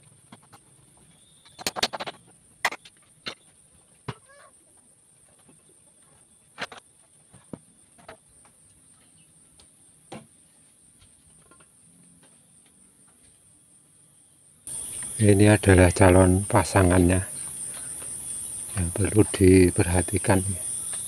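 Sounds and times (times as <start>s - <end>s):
high-pitched insect drone: 14.7s - 21.0s.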